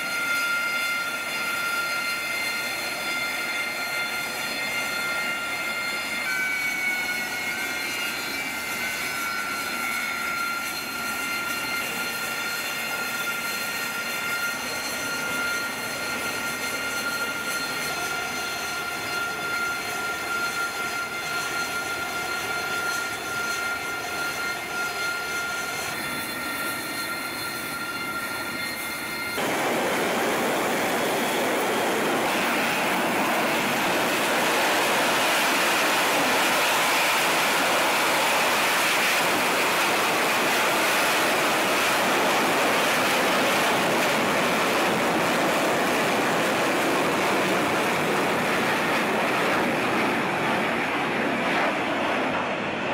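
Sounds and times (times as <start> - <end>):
jet engine high-pitched whine: 0.0 - 52.9
rushing jet noise: 25.0 - 52.9.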